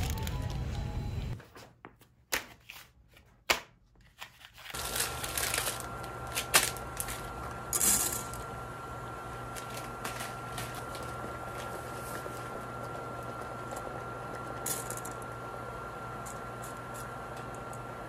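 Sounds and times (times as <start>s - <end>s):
plastic packet crinkling: 0.0s - 0.6s, 4.5s - 7.3s
pot of water boiling: 8.4s - 14.6s.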